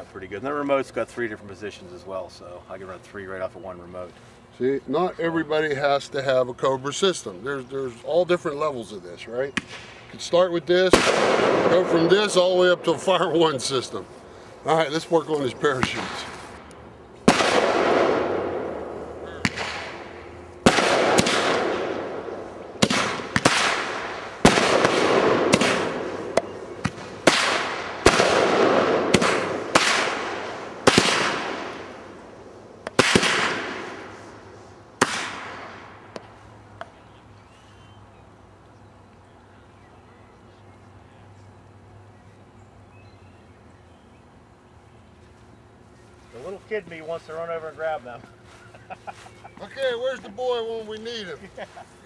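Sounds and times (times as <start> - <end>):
faint outdoor background: 0.0 - 52.0
firework launch pops: 22.8 - 31.6, 32.8 - 34.0, 35.0 - 36.3.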